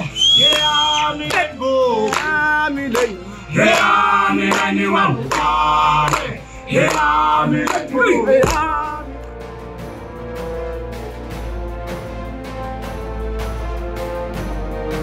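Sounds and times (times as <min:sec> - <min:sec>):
men singing and chanting: 0:00.0 - 0:09.4.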